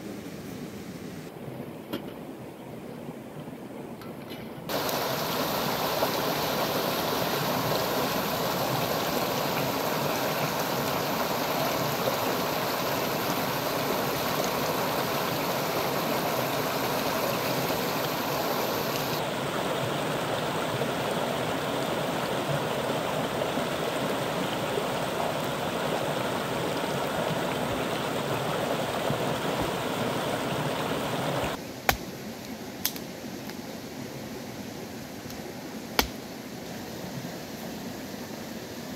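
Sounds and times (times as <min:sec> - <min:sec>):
stream rushing over rocks: 0:04.7 - 0:31.6.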